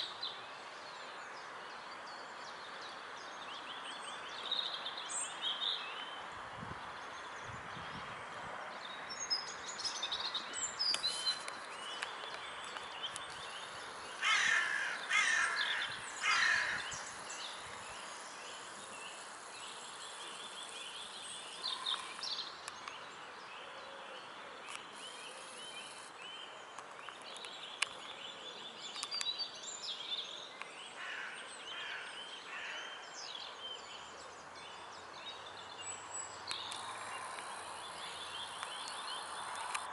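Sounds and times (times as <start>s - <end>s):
songbird chirps: 0.0s - 39.9s
steady background hiss: 0.0s - 39.9s
loud harsh bird calls: 14.1s - 17.5s.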